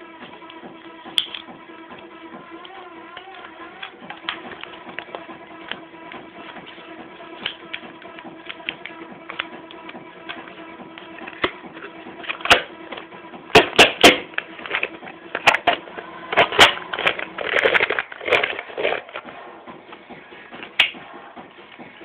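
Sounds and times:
cards sliding: 2.6s - 19.3s.

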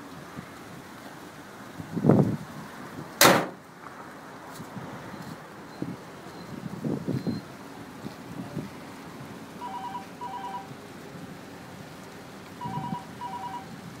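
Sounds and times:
telephone ringing: 9.6s - 10.7s, 12.6s - 13.7s.

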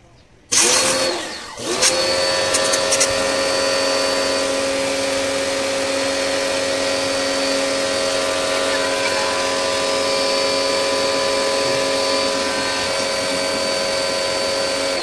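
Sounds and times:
pressure washer motor hum: 0.5s - 15.0s
water jet hissing: 4.6s - 15.0s.

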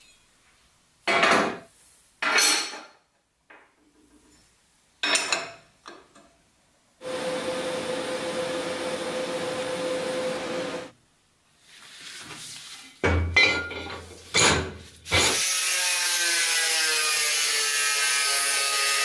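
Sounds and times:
welding arc hissing: 7.0s - 10.9s, 15.1s - 16.0s
steel plates clanking on table: 13.1s - 15.4s.

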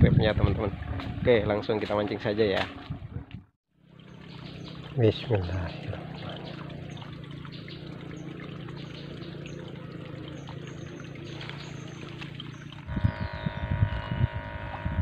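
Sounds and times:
trickle of running water: 3.8s - 15.0s
low steady hum: 5.6s - 15.0s.

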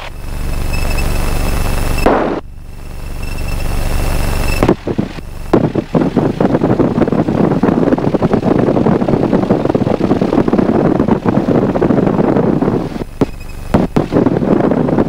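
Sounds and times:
aircraft engine and propeller: 0.0s - 15.0s
wind buffeting microphone: 4.5s - 15.0s.

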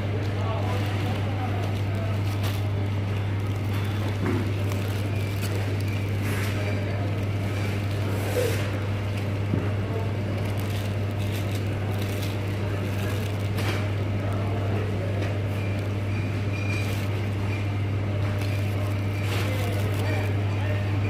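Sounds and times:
cellophane rustling: 0.0s - 21.0s
shop background hum: 0.0s - 21.0s.

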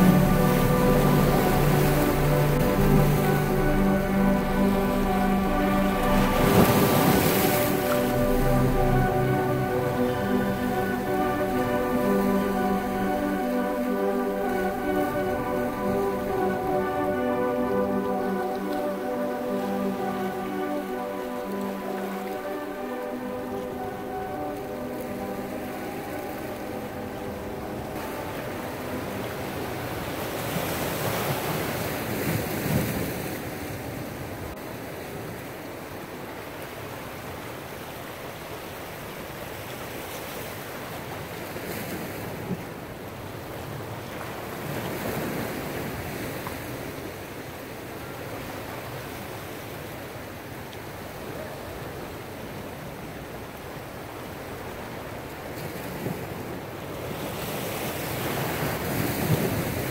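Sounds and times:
wind on microphone: 0.0s - 35.5s, 54.5s - 59.9s
surf washing against rocks: 0.0s - 59.9s.

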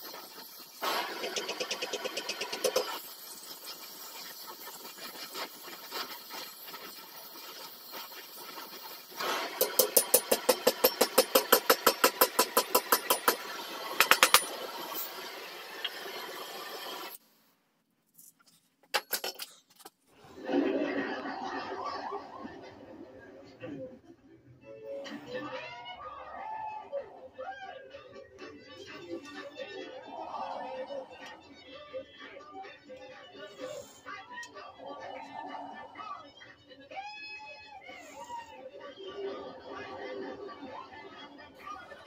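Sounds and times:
gas torch hissing: 0.0s - 10.6s.

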